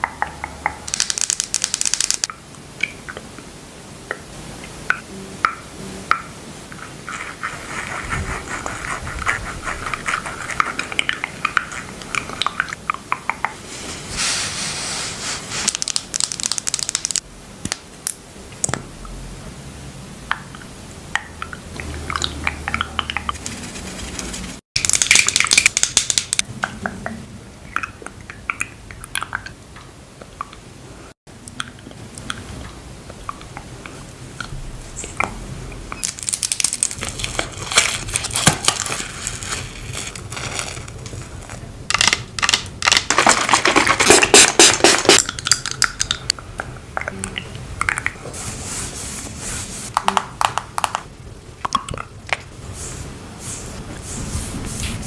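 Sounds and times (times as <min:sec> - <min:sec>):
cosmetic tubes being handled: 0:00.9 - 0:02.3, 0:36.0 - 0:46.4
peel-off face mask crackling: 0:00.9 - 0:02.3, 0:36.0 - 0:46.2.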